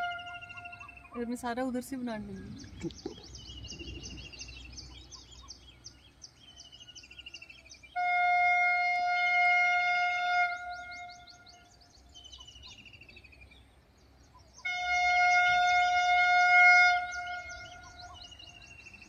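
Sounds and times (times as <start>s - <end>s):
train horn blast: 0.0s - 0.9s, 7.9s - 11.6s, 14.6s - 18.2s
birds chirping: 0.0s - 19.0s.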